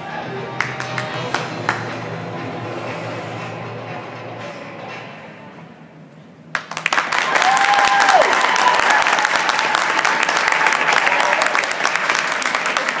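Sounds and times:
spectators applauding: 0:00.6 - 0:01.9, 0:06.5 - 0:13.0.

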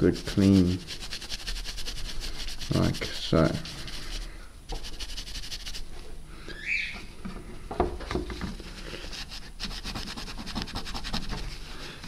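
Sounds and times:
tissue scrubbing a chip: 0:00.0 - 0:05.9, 0:08.7 - 0:12.0.

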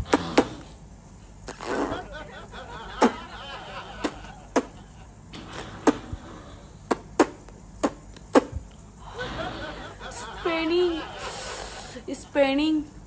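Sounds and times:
fists punching puffed cheeks: 0:00.0 - 0:00.7, 0:04.0 - 0:04.8, 0:05.5 - 0:06.2, 0:06.9 - 0:08.6
air puffing through lips: 0:00.0 - 0:00.8, 0:05.4 - 0:08.8.

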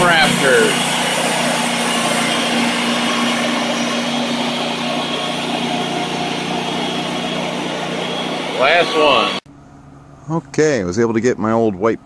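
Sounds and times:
bandsaw sawmill running: 0:00.0 - 0:09.4.

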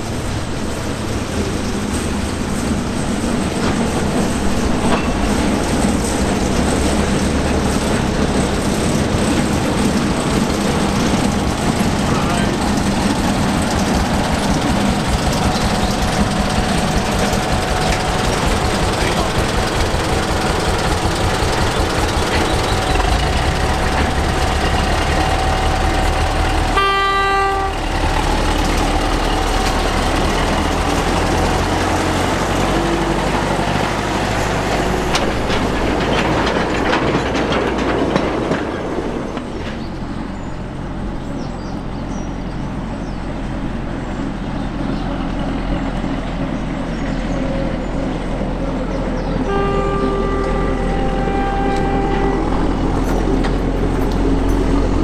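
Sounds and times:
diesel locomotive engine running: 0:00.0 - 0:55.0
locomotive horn toot: 0:26.7 - 0:28.1, 0:49.4 - 0:53.6.

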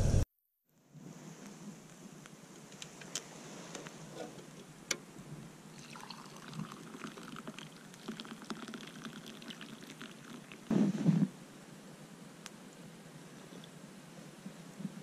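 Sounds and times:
liquid pouring into a mug: 0:05.7 - 0:10.7.

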